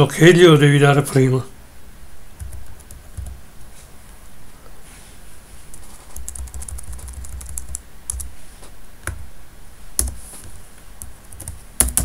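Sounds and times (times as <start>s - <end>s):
keyboard typing: 2.4s - 3.4s, 5.7s - 8.3s, 10.0s - 10.2s, 11.0s - 12.0s.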